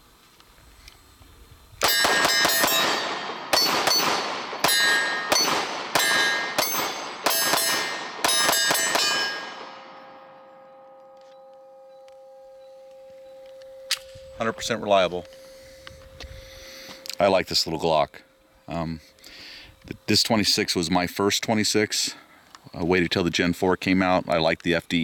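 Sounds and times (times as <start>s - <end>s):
pistol shots: 1.8s - 10.2s
steady ringing tone: 1.8s - 22.3s.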